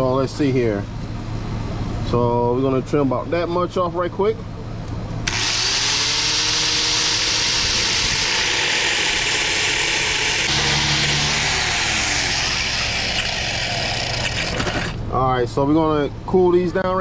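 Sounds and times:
angle grinder grinding metal: 0:05.3 - 0:15.0.

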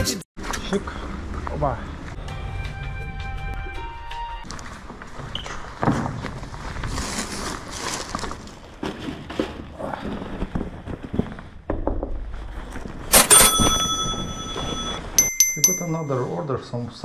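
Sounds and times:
paper bag rustling: 0:04.5 - 0:11.5.

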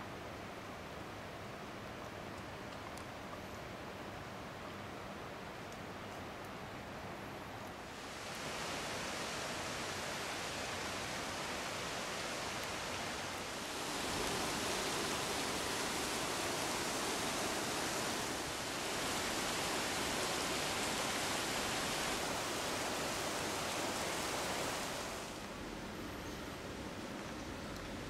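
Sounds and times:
river water rushing over rocks: 0:07.9 - 0:25.9.

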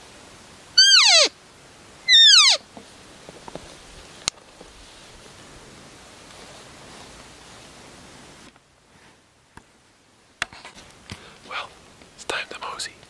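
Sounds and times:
elk call mews: 0:00.8 - 0:01.4, 0:02.1 - 0:02.6.

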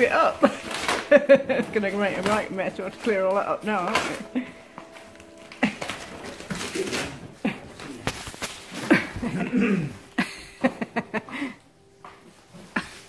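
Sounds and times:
cardboard and paper tearing: 0:00.0 - 0:09.3.

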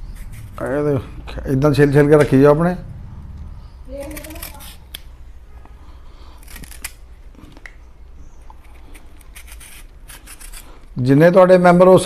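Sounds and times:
knife scraping banana skin: 0:00.0 - 0:00.6, 0:03.9 - 0:05.0, 0:06.3 - 0:07.2, 0:08.5 - 0:10.9.

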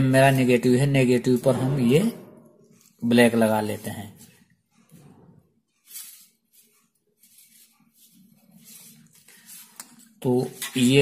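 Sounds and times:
faint wire handling noises: 0:02.6 - 0:11.0
soft rustle: 0:03.7 - 0:11.0.

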